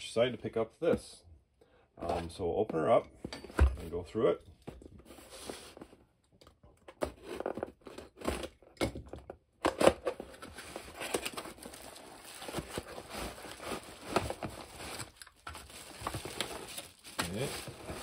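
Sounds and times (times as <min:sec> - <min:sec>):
plastic wrap crinkling: 0:10.8 - 0:18.0.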